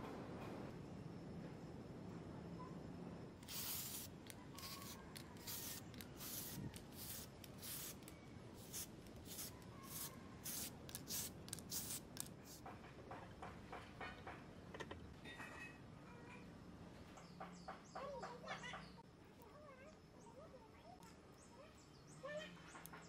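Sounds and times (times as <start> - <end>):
spray can hissing: 3.4 - 12.6.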